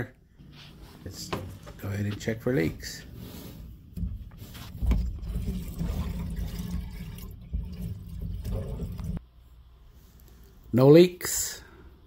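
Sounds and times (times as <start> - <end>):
water rushing into pipes: 4.7 - 9.2.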